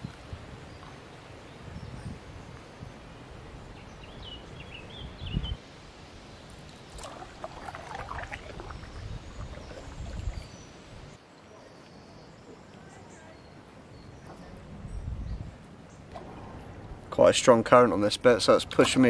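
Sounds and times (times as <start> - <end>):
paddle splashing water: 6.7 - 11.1, 16.1 - 17.4, 18.3 - 19.0
bird chirping: 8.2 - 12.6.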